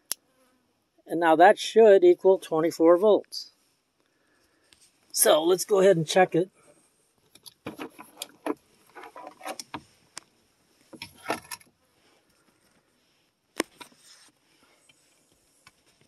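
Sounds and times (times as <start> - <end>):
tools handled on plastic: 7.3 - 9.8, 10.9 - 11.7.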